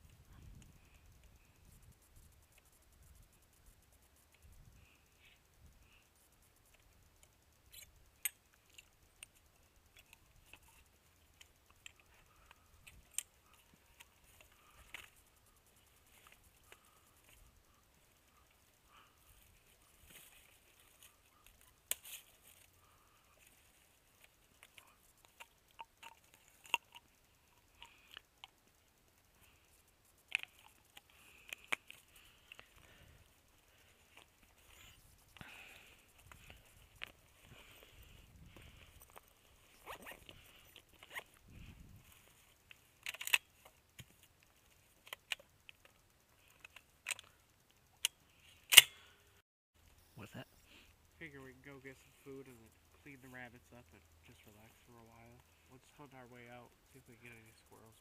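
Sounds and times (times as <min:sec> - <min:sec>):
metallic clicks of choke wrench: 0:06.7 - 0:32.9, 0:36.1 - 0:49.4.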